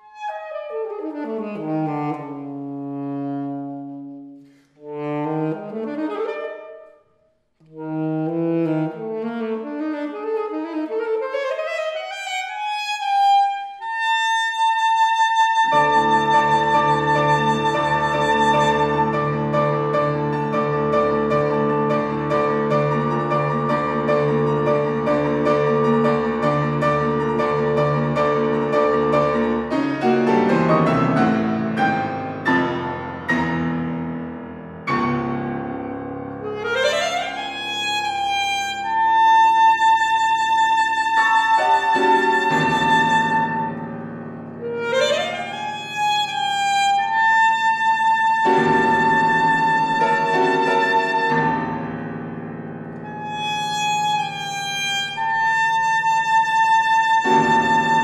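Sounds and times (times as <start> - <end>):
alto saxophone: 0.0 - 7.0, 7.6 - 33.6, 36.3 - 51.9, 53.0 - 58.0
grand piano chords: 15.6 - 58.0.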